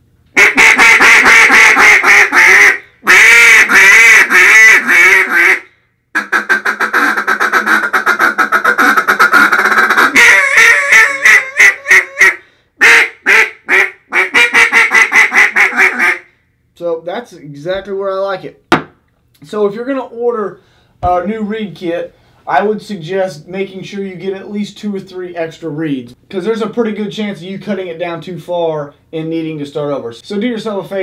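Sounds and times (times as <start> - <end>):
duck call quacks: 0.4 - 16.3.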